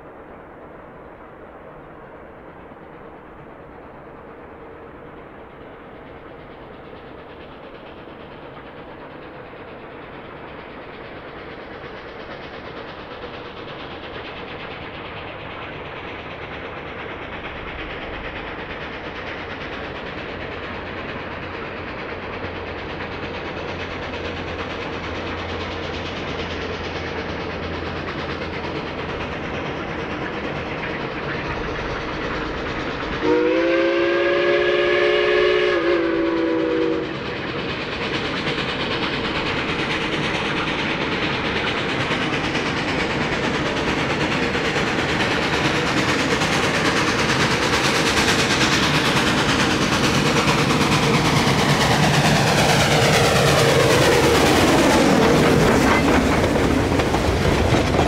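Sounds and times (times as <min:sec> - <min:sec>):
steam train running: 0:00.0 - 0:58.0
steam whistle chord: 0:33.2 - 0:37.1.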